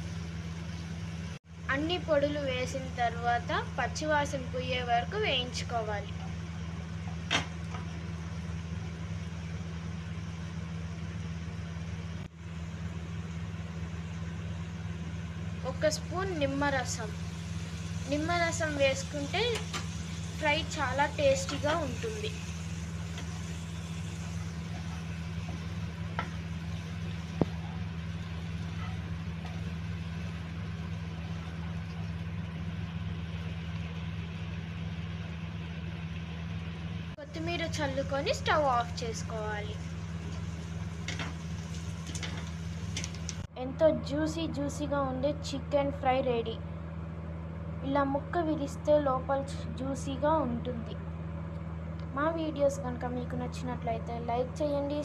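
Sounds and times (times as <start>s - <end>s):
motor humming: 13.0s - 43.5s
frying pan hissing: 15.8s - 31.8s, 37.3s - 43.5s.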